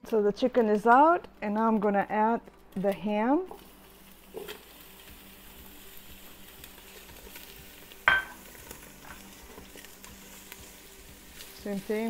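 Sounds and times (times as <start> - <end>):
ham sizzling in oil: 3.2 - 12.0.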